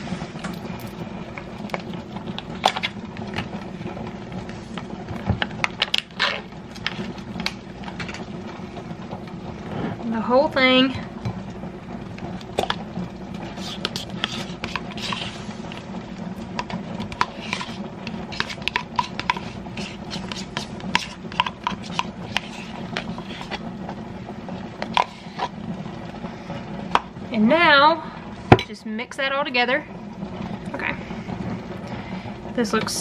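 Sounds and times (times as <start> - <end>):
spoon scraping plastic tub: 5.7 - 7.2, 13.4 - 15.8, 16.5 - 23.7, 24.8 - 25.6.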